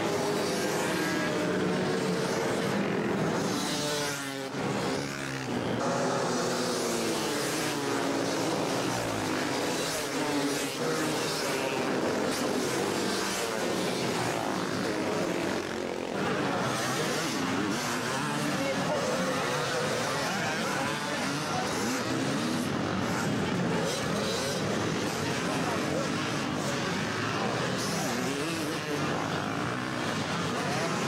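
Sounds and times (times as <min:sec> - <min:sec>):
dirt bike engines revving: 0:00.0 - 0:31.0.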